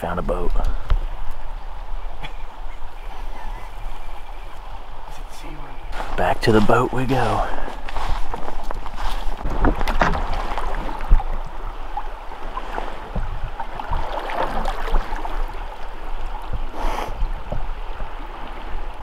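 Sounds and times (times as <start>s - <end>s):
creek water rushing and lapping: 0.0s - 19.0s
oars knocking on raft: 7.8s - 15.6s, 16.4s - 17.8s.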